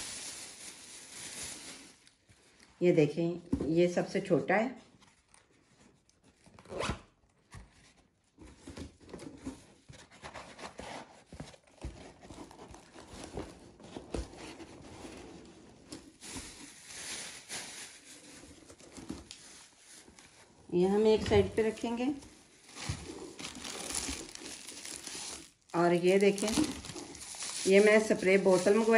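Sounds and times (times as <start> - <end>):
fabric boxes rustling and crinkling: 7.8 - 28.9.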